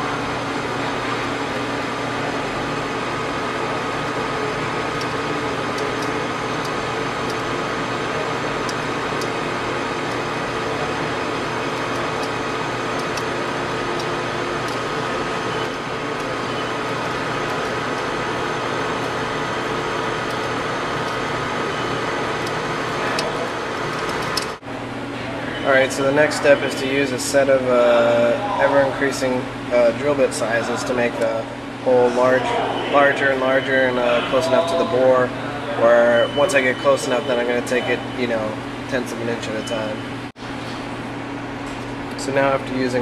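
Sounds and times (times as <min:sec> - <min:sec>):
lathe motor whining: 0:00.0 - 0:40.3.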